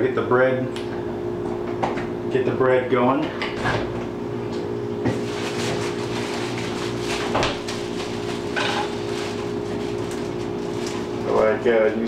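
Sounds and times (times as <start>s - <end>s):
steady low hum: 0.0s - 12.0s
plastic bag rustling: 5.1s - 11.6s.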